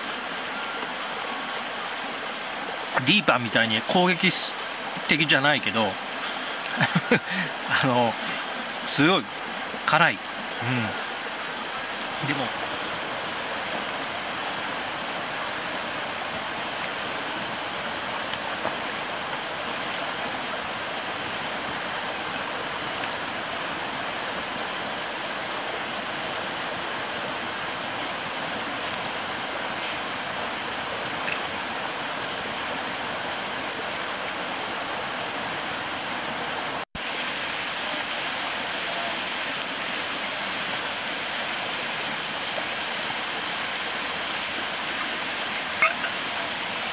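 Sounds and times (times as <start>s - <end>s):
river rushing: 0.0s - 46.9s
faint campfire click: 31.0s - 31.6s.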